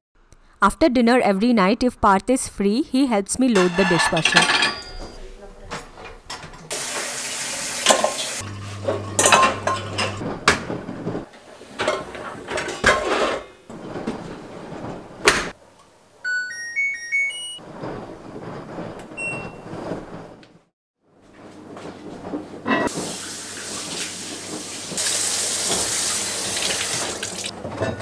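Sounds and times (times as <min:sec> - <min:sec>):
dishes and racks clattering: 0:03.5 - 0:15.6, 0:21.4 - 0:28.0
dishwasher rising chime: 0:03.6 - 0:05.2, 0:06.8 - 0:10.2, 0:16.2 - 0:17.6, 0:19.2 - 0:19.8.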